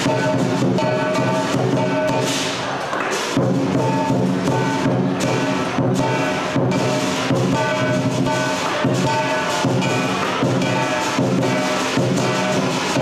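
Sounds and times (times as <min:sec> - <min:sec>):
lion dance music: 0:00.0 - 0:13.0
steady percussive beat: 0:00.0 - 0:13.0
sustained pitched instruments: 0:03.6 - 0:13.0.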